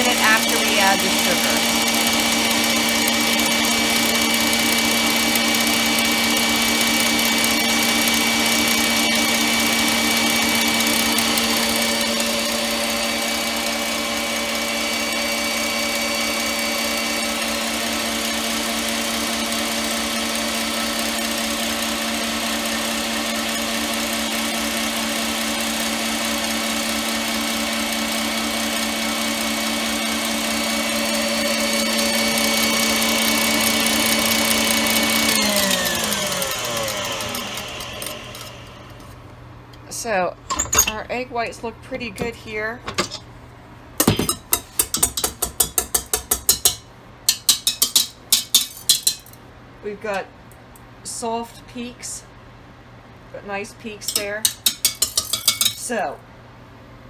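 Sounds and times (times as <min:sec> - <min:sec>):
stand mixer whisking: 0:00.0 - 0:39.1, 0:54.1 - 0:55.7.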